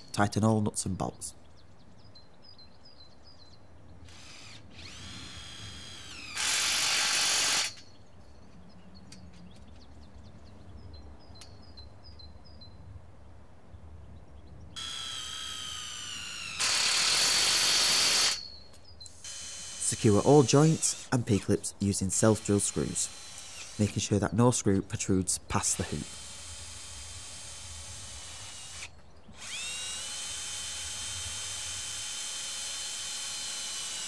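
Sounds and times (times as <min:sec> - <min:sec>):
cordless drill motor whine: 0:04.1 - 0:07.9, 0:14.8 - 0:21.4, 0:22.3 - 0:23.9, 0:25.8 - 0:34.0
drill rattling: 0:04.1 - 0:07.9, 0:14.8 - 0:24.3, 0:25.5 - 0:34.0.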